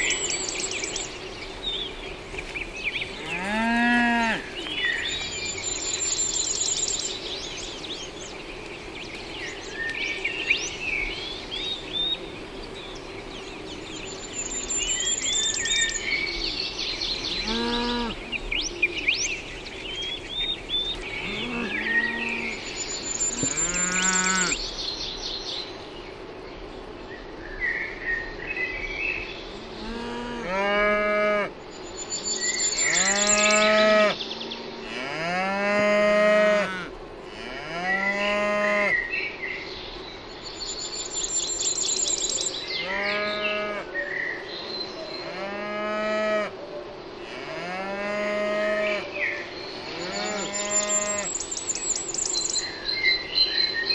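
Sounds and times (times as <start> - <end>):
cows mooing: 3.2 - 4.5, 17.4 - 18.2, 21.2 - 22.6, 23.4 - 24.6, 50.0 - 51.3.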